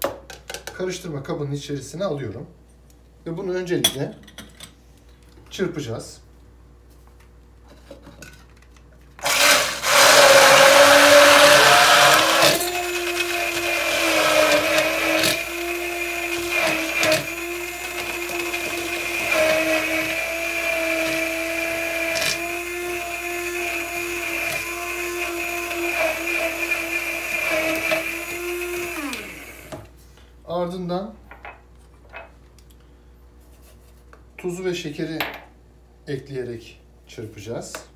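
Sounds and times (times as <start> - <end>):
blender motor winding down: 9.2 - 29.8
immersion blender running: 9.2 - 29.9.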